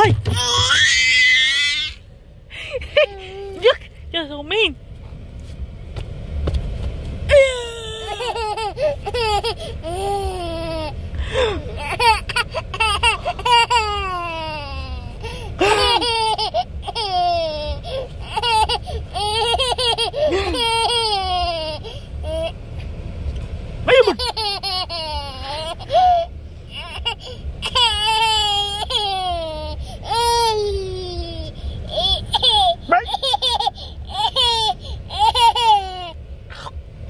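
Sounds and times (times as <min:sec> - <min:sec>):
toddler belly laughing: 0:07.3 - 0:10.9, 0:15.6 - 0:21.9, 0:23.9 - 0:26.2, 0:31.9 - 0:36.1.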